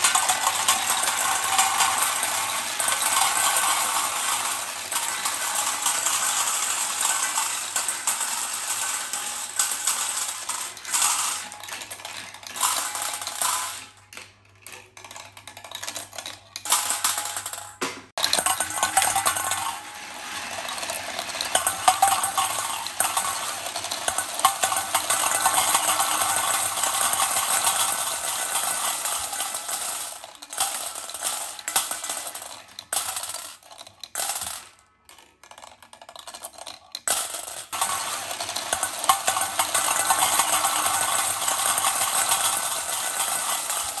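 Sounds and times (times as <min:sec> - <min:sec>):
marbles rattling in metal bowl: 0:00.0 - 0:44.0.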